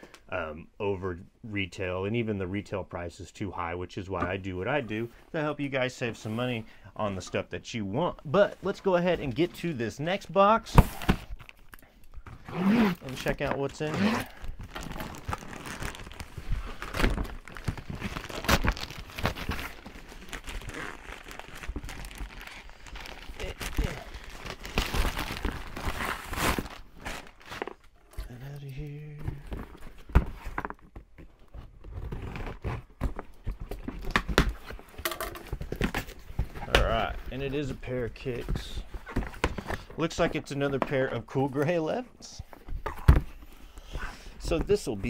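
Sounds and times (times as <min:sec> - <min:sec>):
packaging crinkling and tearing: 0:12.4 - 0:27.9.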